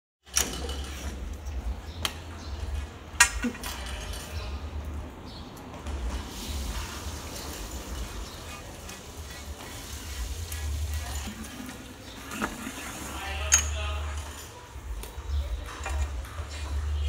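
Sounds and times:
metal pipe clinks and knocks: 13.5 - 14.0.

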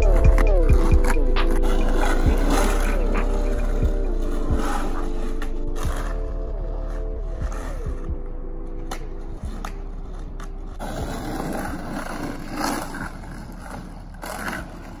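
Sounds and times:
skateboard wheels rolling on asphalt: 0.0 - 15.0
skateboard clacks: 8.8 - 15.0.

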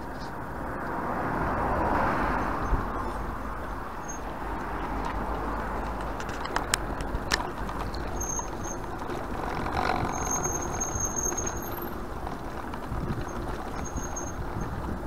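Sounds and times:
footsteps on cobblestones: 2.3 - 15.0
thin high squeal: 4.0 - 4.3, 7.8 - 12.0, 13.1 - 14.7
sharp clicks: 4.9 - 13.9.

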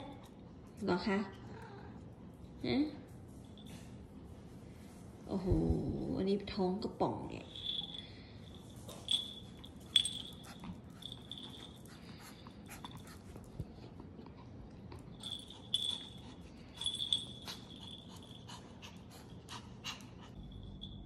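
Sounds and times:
collar bell jingling: 7.5 - 13.2, 15.0 - 19.5, 20.3 - 21.0.

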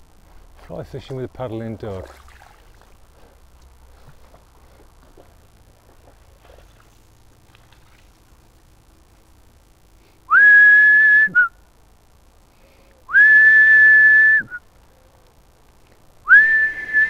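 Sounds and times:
recall whistle: 10.3 - 11.6, 13.1 - 14.7, 16.3 - 17.0.

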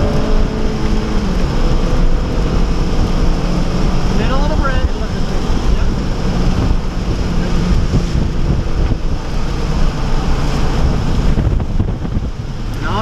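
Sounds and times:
car engine pulling: 0.0 - 13.0
road and wind noise: 0.0 - 13.0.

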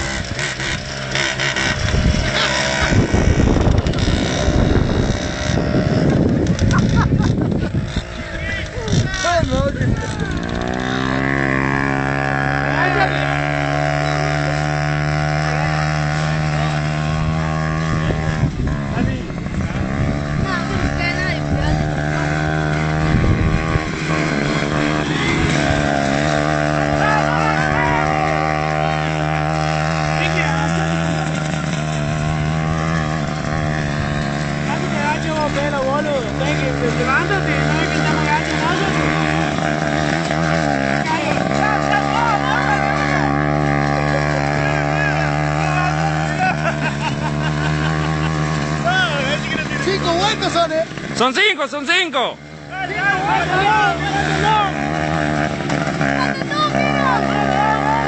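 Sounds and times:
wind buffeting microphone: 0.0 - 13.8, 14.7 - 27.0, 27.8 - 42.1
small motorcycle engine running: 0.0 - 58.0.

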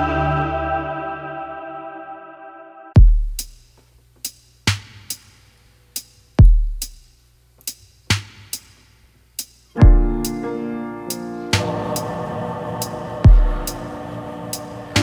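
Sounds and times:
held music chord: 0.0 - 2.9, 9.8 - 15.0
drum beat with deep kick: 3.0 - 5.3, 6.0 - 8.8, 9.4 - 10.4, 13.2 - 13.8.

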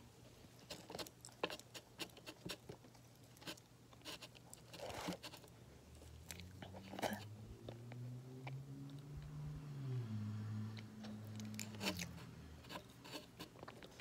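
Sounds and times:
crunchy food being chewed: 0.6 - 9.3, 10.7 - 14.0.

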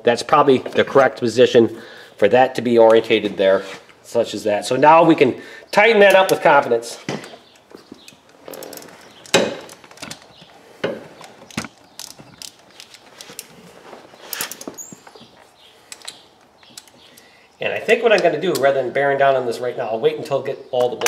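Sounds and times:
socket ratchet clicking: 11.2 - 13.5, 15.9 - 17.3.

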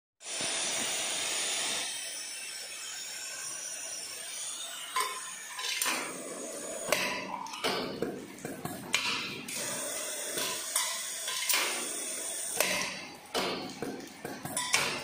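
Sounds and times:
bagging machine hiss: 0.2 - 7.0, 9.5 - 13.0.

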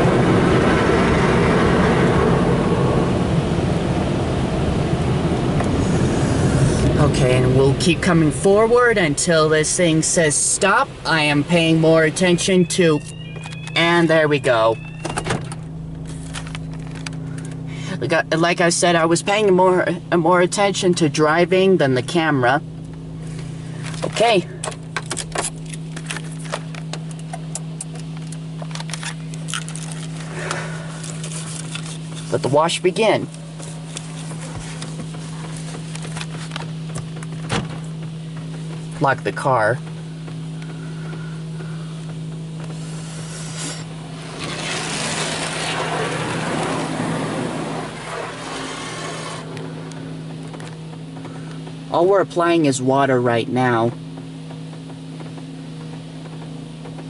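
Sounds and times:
low machinery hum: 0.0 - 57.0
sharp clicks and light rattles: 23.8 - 32.4
water spray hissing: 42.7 - 49.6.

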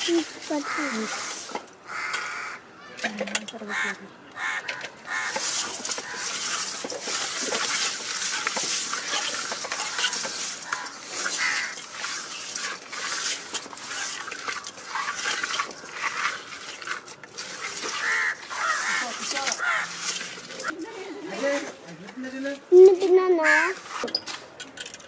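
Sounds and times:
hands scraping fish in steel bowl: 5.1 - 20.7.

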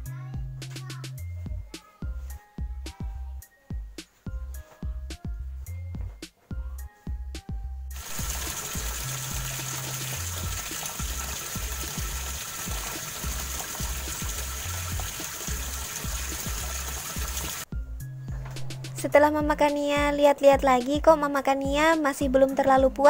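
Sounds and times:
background music with beat: 0.0 - 23.0
washing machine churning water: 8.0 - 17.7.

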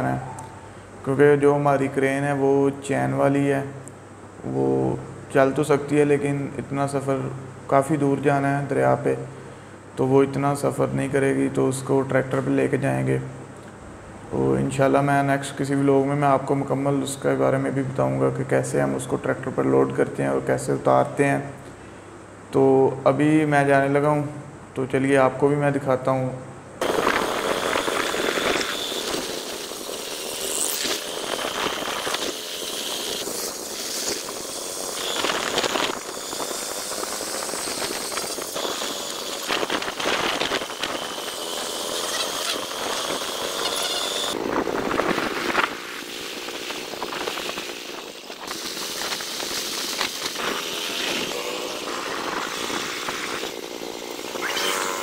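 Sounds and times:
road noise: 0.0 - 1.2, 26.6 - 55.0
motorcycle engine hum: 39.3 - 55.0.

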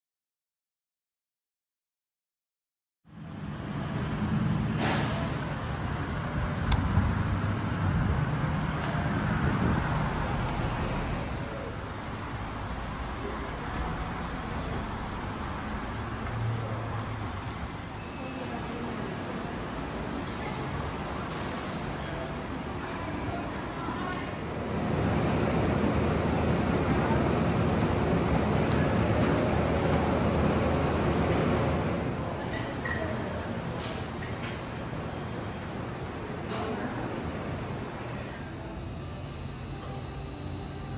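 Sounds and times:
low rumble of vehicle noise: 3.1 - 40.9
low mechanical rumble: 37.9 - 40.9.

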